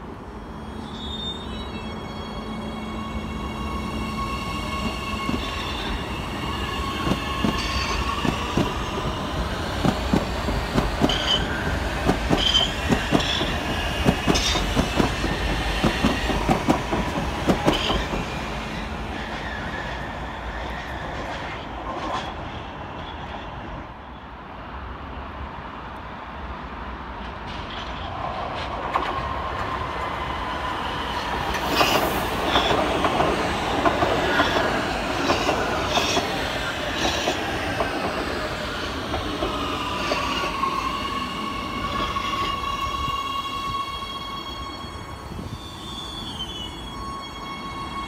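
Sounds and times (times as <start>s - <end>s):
high wheel squeal: 0.4s - 10.0s, 11.0s - 16.4s, 39.5s - 48.0s
train wheels clicking over joints: 7.0s - 18.4s, 31.4s - 40.7s.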